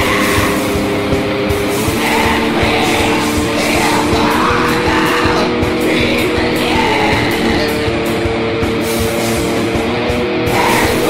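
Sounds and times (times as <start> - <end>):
harsh vocal: 0.0 - 8.3, 10.4 - 11.0
distorted guitars: 0.0 - 11.0
fast dense drumming: 0.0 - 11.0.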